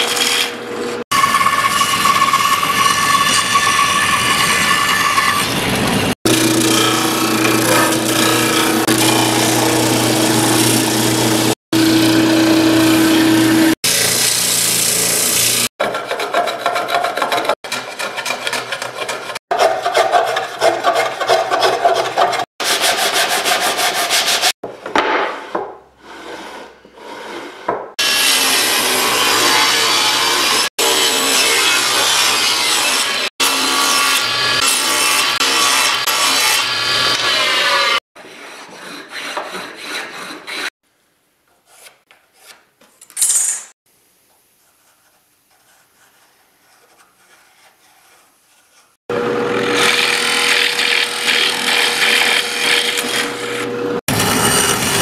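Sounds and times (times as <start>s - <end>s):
table saw cutting wood: 0.0s - 24.6s, 25.2s - 40.8s, 49.0s - 55.0s
hand plane shaving wood: 15.8s - 24.6s, 37.1s - 40.7s, 44.8s - 49.0s, 49.7s - 53.7s.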